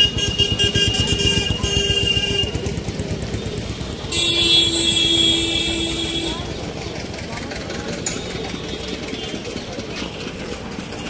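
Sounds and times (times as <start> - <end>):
vehicle horn blasts: 0.0 - 2.7, 4.0 - 6.5
street traffic rumble: 0.0 - 11.0.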